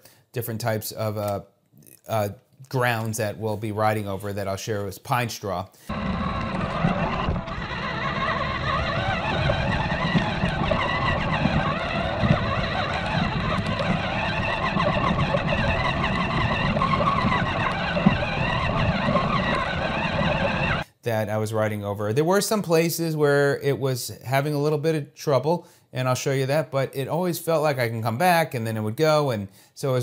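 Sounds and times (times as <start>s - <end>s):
driving over pine straw: 5.9s - 20.8s
toy truck electric motor whine: 5.9s - 20.8s.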